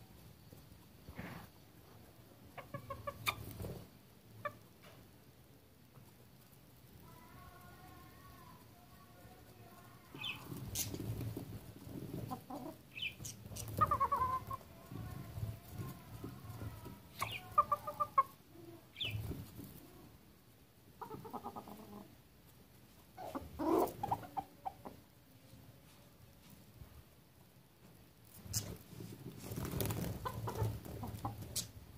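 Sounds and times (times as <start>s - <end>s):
roosters clucking: 2.4s - 5.0s, 9.4s - 19.9s, 20.9s - 25.1s, 28.3s - 31.9s.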